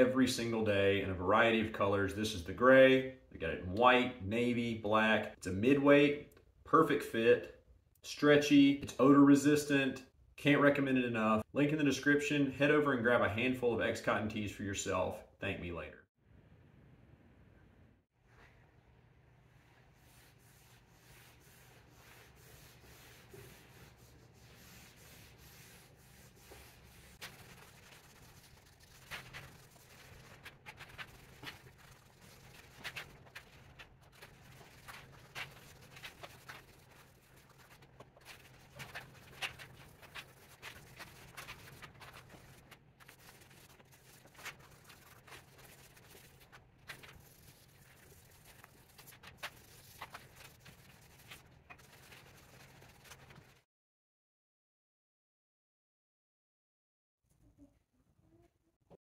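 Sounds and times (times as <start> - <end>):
rag rubbing on wood: 20.0 - 53.5.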